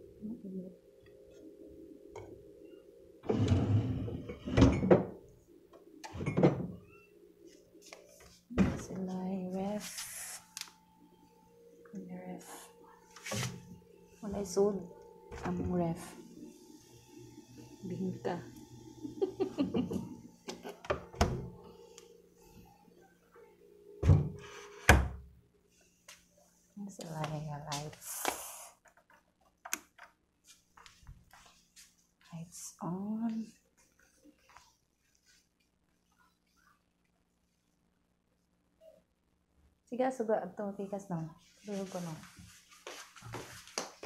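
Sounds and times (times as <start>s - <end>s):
fridge door shutting: 20.6s - 21.6s, 24.0s - 25.2s.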